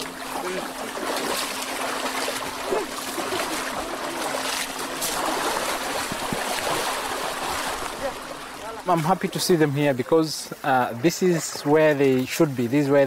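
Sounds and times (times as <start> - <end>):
elephants splashing through water: 0.0 - 9.7.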